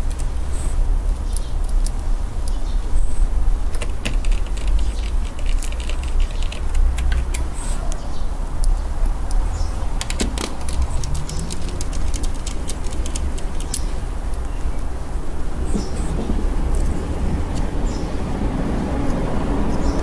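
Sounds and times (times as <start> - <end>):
steady low rumble: 8.2 - 20.0.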